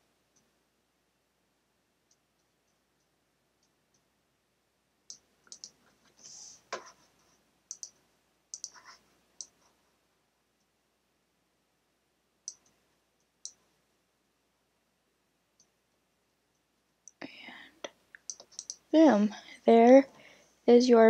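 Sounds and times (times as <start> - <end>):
faint computer mouse clicks: 5.1 - 5.8, 7.7 - 9.6, 12.5 - 12.8, 18.2 - 18.8.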